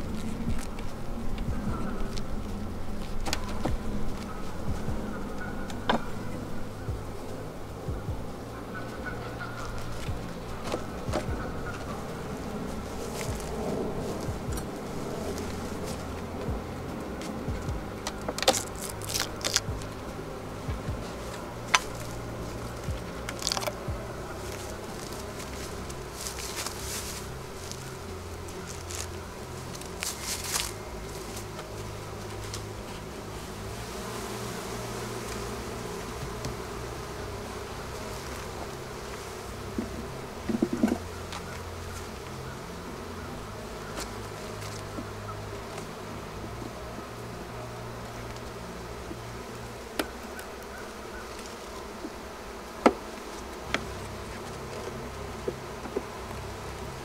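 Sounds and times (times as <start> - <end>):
honeybees buzzing: 0.0 - 57.0
hive tool knocking on wood: 36.1 - 36.7, 49.9 - 50.3, 52.8 - 53.1.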